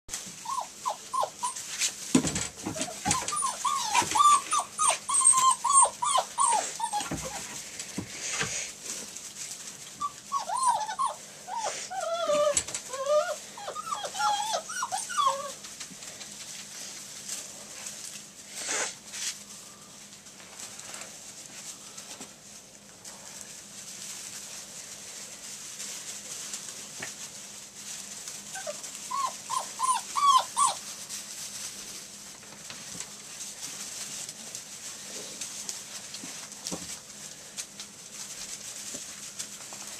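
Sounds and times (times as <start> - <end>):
rustles in wood shavings: 0.1 - 39.9
puppies whimpering and yipping: 0.4 - 7.6, 9.8 - 15.8, 28.4 - 31.0.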